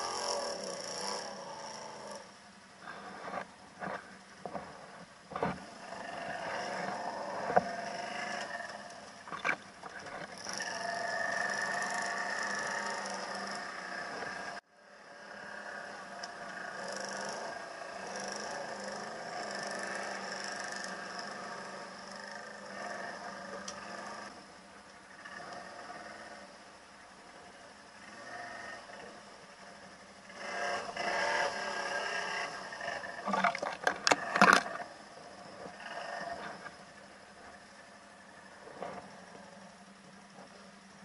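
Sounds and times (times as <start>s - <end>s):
quad bike engine running: 5.5s - 9.1s, 10.1s - 26.6s, 28.0s - 33.2s.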